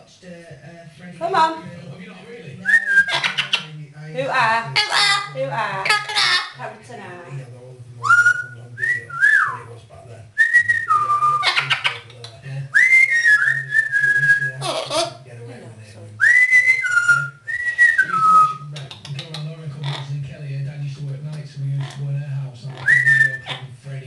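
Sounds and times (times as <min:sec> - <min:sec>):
parrot whistling: 0:02.6 - 0:03.7, 0:04.7 - 0:06.6, 0:08.0 - 0:09.6, 0:10.4 - 0:12.1, 0:12.8 - 0:15.2, 0:16.2 - 0:20.1, 0:22.7 - 0:23.6
parrot harsh cry: 0:03.1 - 0:03.7, 0:04.8 - 0:06.6, 0:14.6 - 0:15.2.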